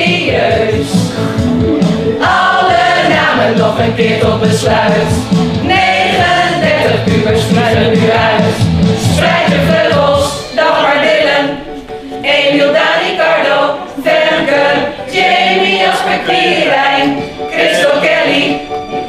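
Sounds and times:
low instrumental accompaniment: 0.0s - 12.2s
group of people singing in unison: 0.0s - 19.0s.

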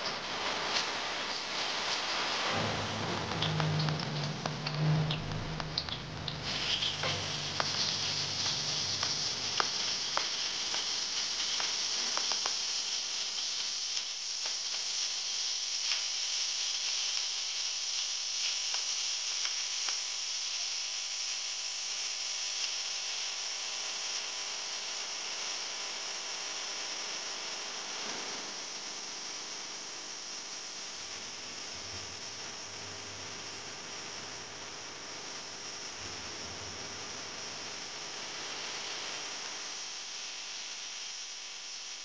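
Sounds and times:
food sizzling in hot oil: 0.0s - 21.0s
low hum: 2.4s - 10.2s
oil pops and crackles: 5.7s - 12.7s.

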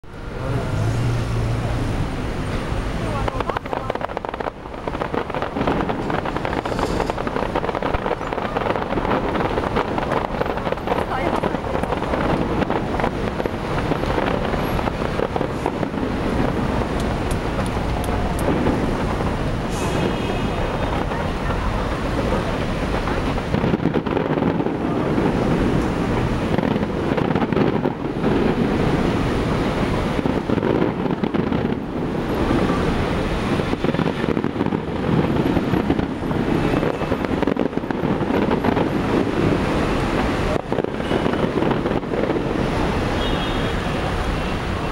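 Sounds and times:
distant fireworks rumbling: 0.0s - 44.9s
wind noise on microphone: 0.0s - 44.9s
murmur of voices: 17.4s - 26.4s.

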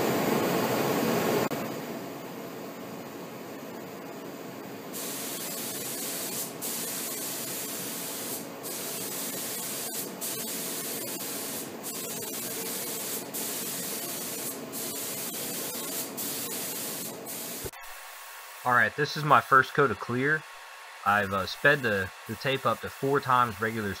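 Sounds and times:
paint spray gun hissing: 4.9s - 18.7s.

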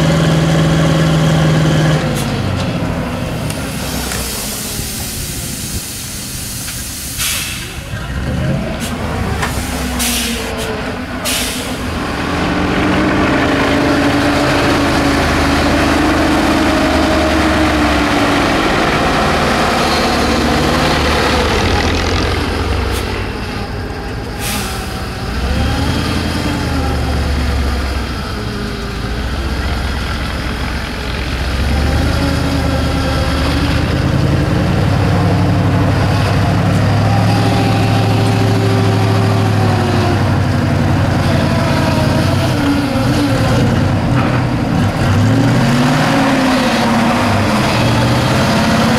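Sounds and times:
truck engine under load: 0.0s - 48.9s
air brake hisses: 3.7s - 7.9s, 8.8s - 11.9s, 24.4s - 25.1s.

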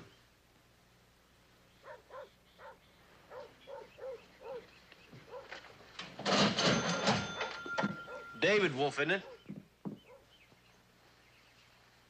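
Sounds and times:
dog barking faintly: 1.8s - 5.7s, 7.3s - 8.4s, 9.2s - 10.3s.

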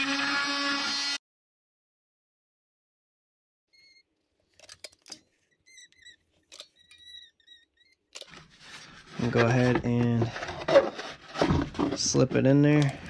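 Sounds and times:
adhesive squeaks: 3.7s - 4.1s, 5.0s - 9.7s.

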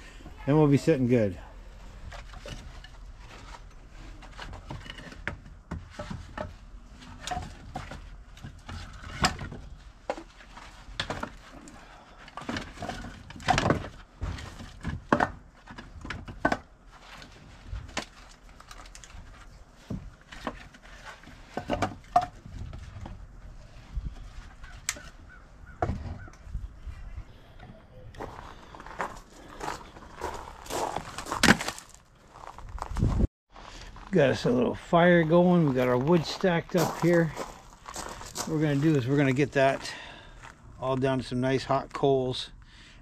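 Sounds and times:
firewood pieces knocking together: 10.9s - 11.5s, 12.3s - 16.7s.

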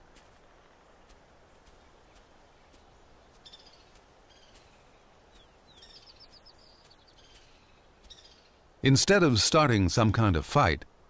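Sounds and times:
small birds chirping: 0.1s - 8.8s.

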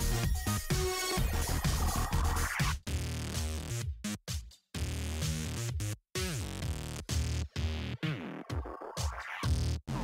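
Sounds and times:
electronic music with gliding synth: 0.0s - 3.8s.

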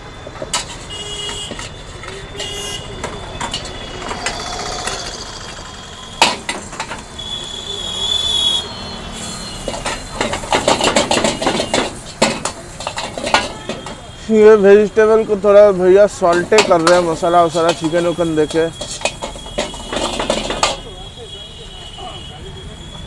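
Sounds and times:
street traffic rumbling: 0.0s - 23.0s
vehicle horn toots: 0.6s - 12.2s, 13.2s - 14.6s, 17.4s - 23.0s
spatula clattering on metal pan: 9.7s - 14.0s, 16.2s - 20.9s.

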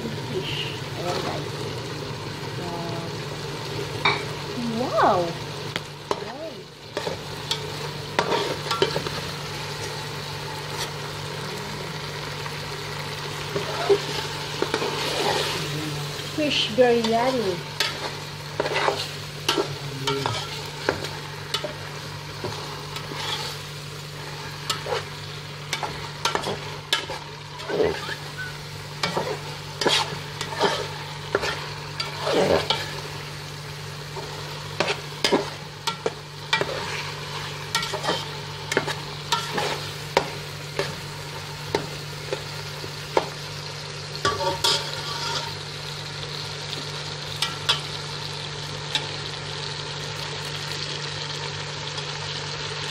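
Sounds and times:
frying sizzle: 0.0s - 52.9s
metal spatula scraping metal pot: 22.4s - 23.6s, 25.7s - 33.0s, 34.2s - 39.9s, 44.3s - 45.6s.

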